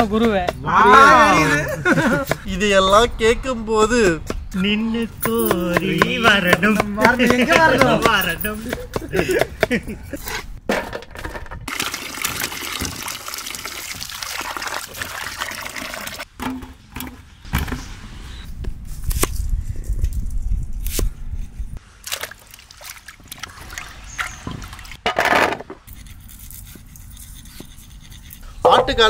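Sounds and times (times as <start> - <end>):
water pouring into pot: 11.7 - 16.2.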